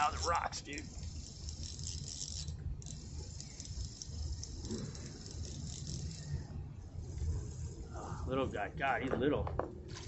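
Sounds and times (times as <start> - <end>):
fishing reel cranking rattle: 0.0 - 7.8
steady low rumble: 0.0 - 10.0.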